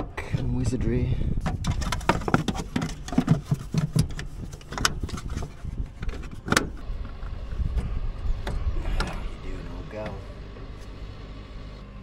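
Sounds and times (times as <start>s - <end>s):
steady low rumble: 0.0s - 12.0s
plastic clicks and scrapes: 1.4s - 6.8s.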